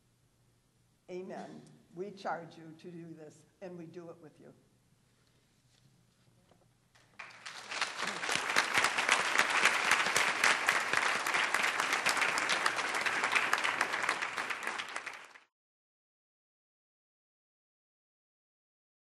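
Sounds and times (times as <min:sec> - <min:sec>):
audience applauding: 0:07.0 - 0:15.5.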